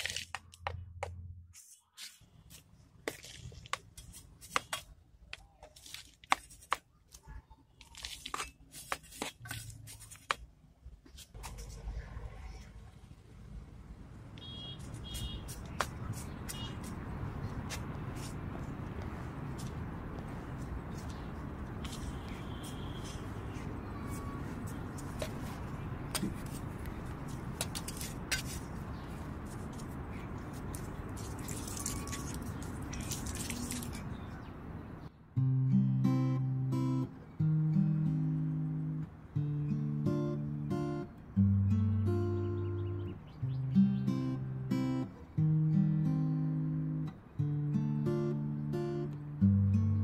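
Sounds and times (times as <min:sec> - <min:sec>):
trowel scraping dry soil: 0:26.2 - 0:34.1
trowel scraping soil: 0:27.6 - 0:28.8.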